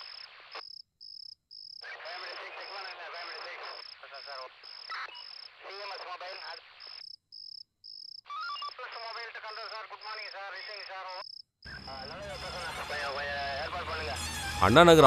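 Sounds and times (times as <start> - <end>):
crickets chirping: 0.0 - 8.3, 8.9 - 13.3
radio voice chatter: 1.8 - 6.8, 8.3 - 15.0.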